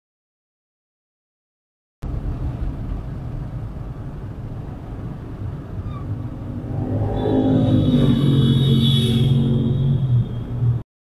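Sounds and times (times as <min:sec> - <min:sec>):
traffic rumble inside a car: 0:02.0 - 0:10.8
deep engine note: 0:06.0 - 0:10.4.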